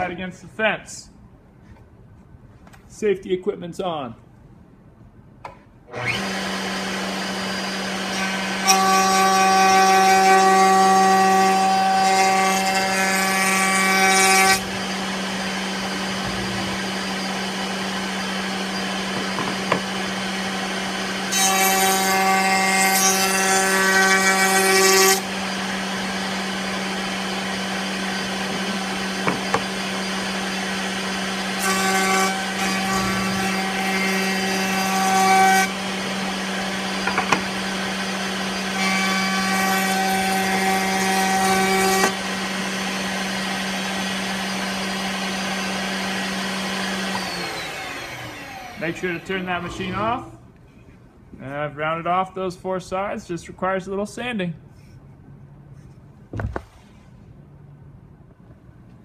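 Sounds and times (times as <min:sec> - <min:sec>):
router cutting wood: 0:05.9 - 0:50.4
router table running: 0:06.0 - 0:50.3
wooden board knocks: 0:19.2 - 0:19.9, 0:29.2 - 0:29.7, 0:37.0 - 0:37.5.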